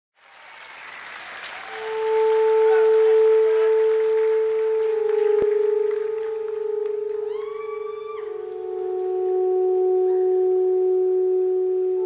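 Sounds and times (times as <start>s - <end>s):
audience applause: 0.2s - 8.6s
faint higher tone: 1.8s - 12.0s.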